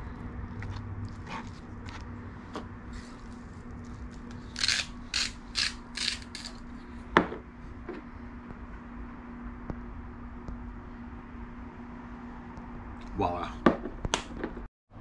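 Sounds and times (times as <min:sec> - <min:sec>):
salt grinder cracking crystals: 0:04.4 - 0:06.6.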